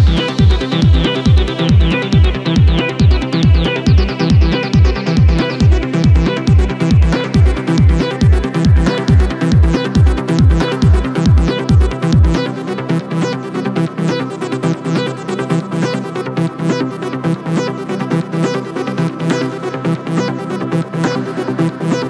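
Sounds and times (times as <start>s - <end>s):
kick drum beat: 0.0s - 12.4s
synths: 0.0s - 22.0s.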